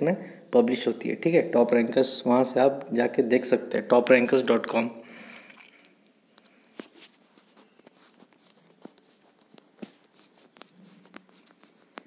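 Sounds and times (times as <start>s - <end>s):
taps and scrapes on touchscreen: 6.4s - 12.0s.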